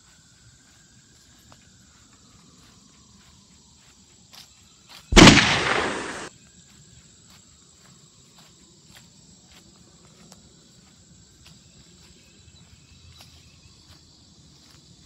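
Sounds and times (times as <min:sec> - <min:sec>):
footsteps on grass: 0:05.1 - 0:06.3.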